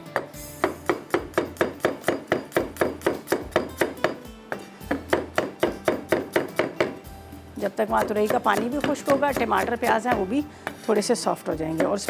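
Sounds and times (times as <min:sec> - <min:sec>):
soft background music: 0:00.0 - 0:12.0
knife chopping on wooden board: 0:00.1 - 0:07.0, 0:07.9 - 0:10.9.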